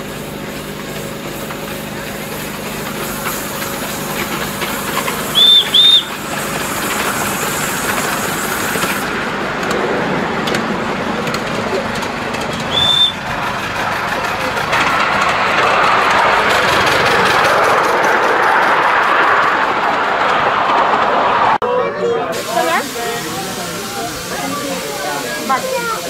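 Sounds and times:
railway yard rumble and hiss: 0.0s - 26.0s
high whistle toots: 5.3s - 6.2s, 12.7s - 13.2s.

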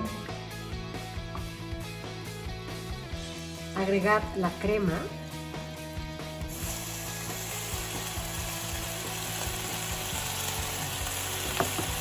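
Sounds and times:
butter sizzling in a pan: 6.4s - 12.0s.

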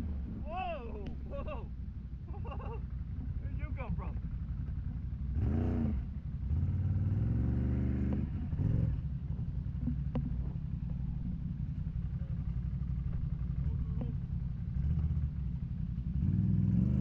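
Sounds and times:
quad engine revving: 5.3s - 9.1s, 16.0s - 17.0s
engine clacks: 8.0s - 16.7s.

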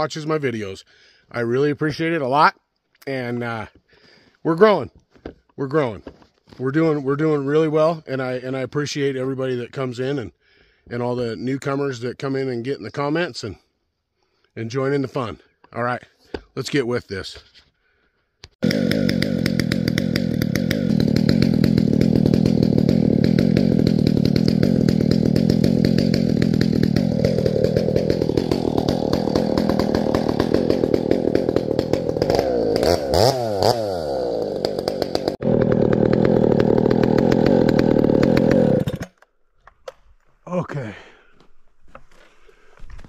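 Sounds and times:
chainsaw running: 18.6s - 39.2s.

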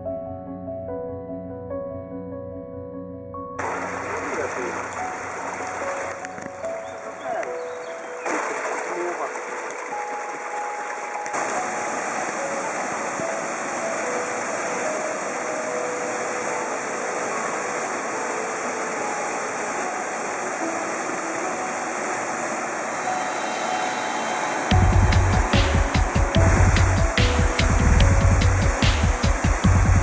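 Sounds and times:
water splashing into pool: 3.6s - 7.5s, 8.1s - 14.8s
water pouring over a weir: 8.2s - 11.7s.

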